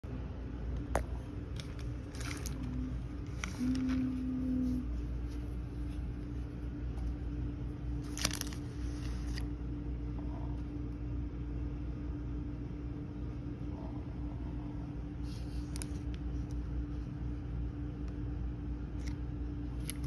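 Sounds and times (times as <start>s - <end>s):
steady low hum: 0.0s - 20.0s
plastic cups being handled: 0.9s - 6.3s, 8.0s - 9.4s
plastic bag crinkling: 1.5s - 6.0s, 8.0s - 9.4s.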